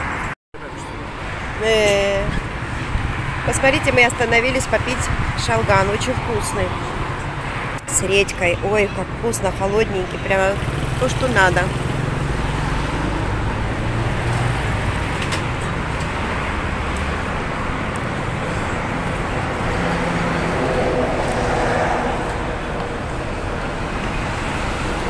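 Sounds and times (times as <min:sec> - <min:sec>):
cars and vans driving past: 0:00.0 - 0:25.0.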